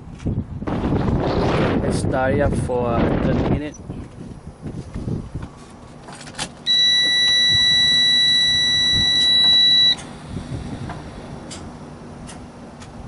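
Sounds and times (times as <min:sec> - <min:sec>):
dashboard warning buzzer: 0:06.7 - 0:10.0.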